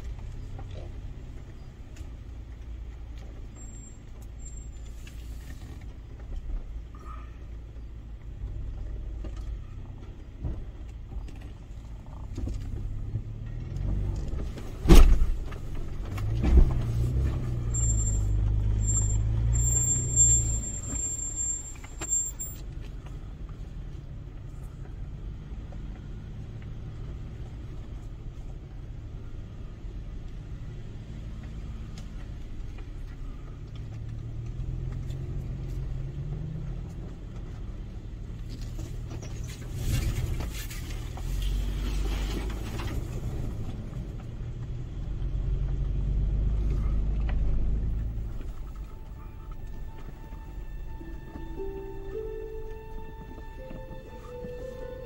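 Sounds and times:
engine rumbling: 0.0s - 55.0s
thump: 14.8s - 15.4s.

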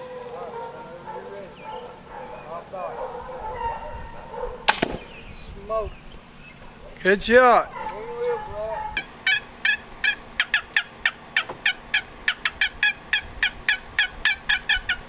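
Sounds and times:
box turkey call yelps: 7.7s - 15.0s.

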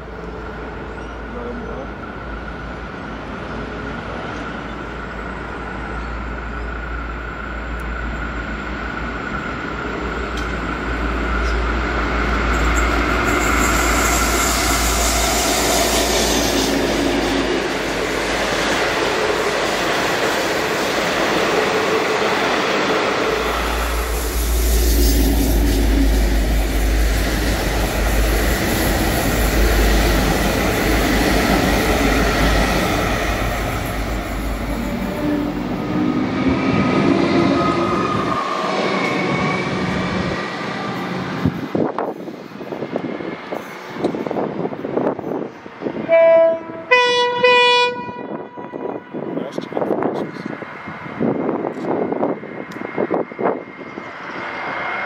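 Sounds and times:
diesel train passing: 0.0s - 55.0s
high whine: 21.9s - 40.4s.

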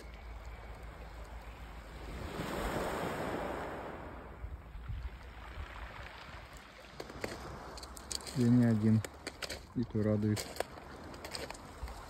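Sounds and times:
wave breaking on pebble beach: 2.0s - 4.2s.

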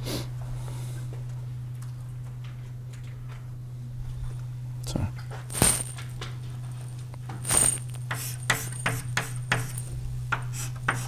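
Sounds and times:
steady low hum: 0.0s - 11.0s
chalk tapping and scratching: 7.4s - 11.0s.

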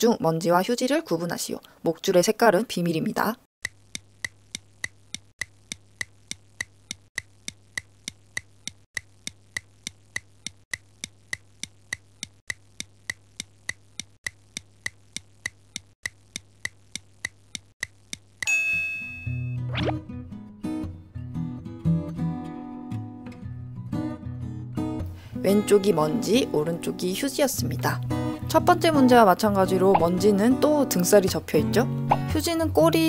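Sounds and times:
ringing tone: 18.5s - 19.9s.

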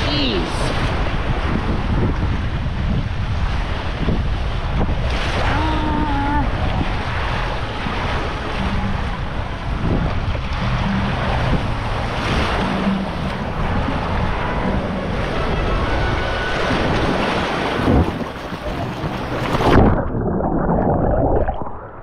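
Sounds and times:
wind noise on microphone: 0.0s - 22.0s
muffled underwater sound: 4.6s - 22.0s
water rushing down a slide: 15.4s - 22.0s.

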